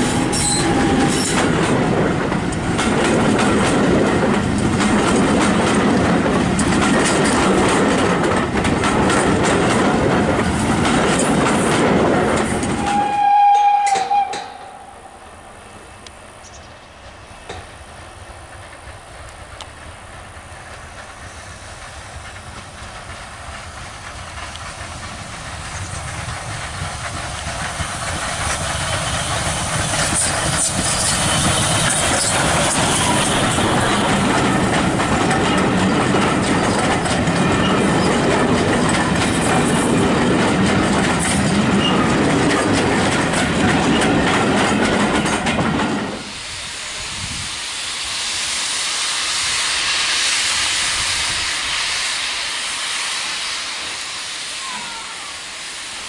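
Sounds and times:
steam hissing from locomotive: 0.0 - 6.5, 16.2 - 56.0
steam train rumbling past: 0.0 - 56.0
carriage wheels clicking over rail joints: 2.5 - 10.2, 22.2 - 46.1.

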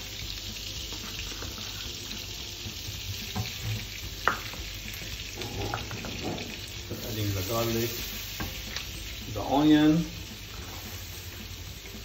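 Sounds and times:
garlic sizzling in a pan: 0.0 - 12.0
wooden spoon knocking on pan: 3.3 - 4.7.

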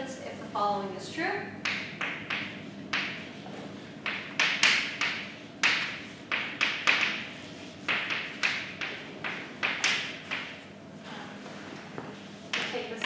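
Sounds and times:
chalk tapping and scratching: 1.6 - 10.6.

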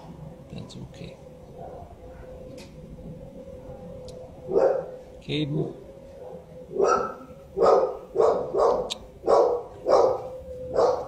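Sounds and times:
dog barking: 1.6 - 1.9, 4.5 - 4.9, 6.2 - 11.0.

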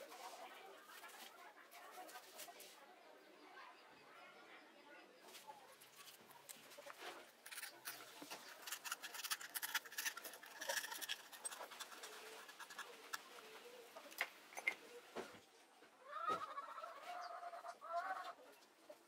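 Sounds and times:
knife scratching speaker cone: 7.4 - 13.5.

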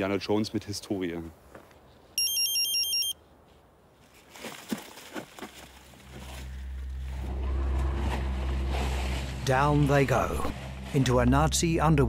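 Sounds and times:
gas detector warbling beeps: 2.2 - 3.2
low steady drone: 5.8 - 12.0.

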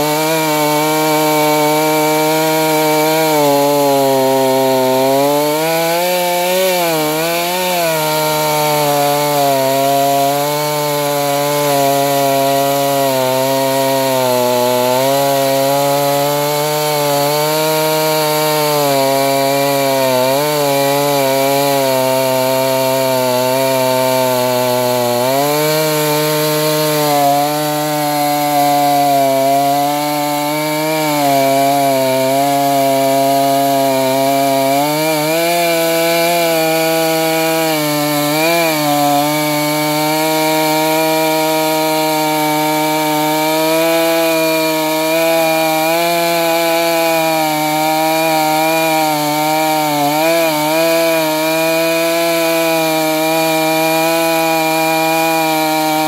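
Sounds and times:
chainsaw cutting log under load: 0.0 - 56.0.

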